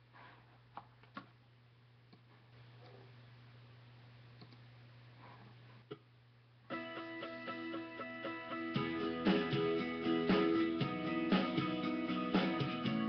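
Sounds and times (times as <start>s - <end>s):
room hiss: 0.0s - 13.0s
soft clicks: 4.4s - 4.7s
guitar strummed chord: 6.7s - 13.0s.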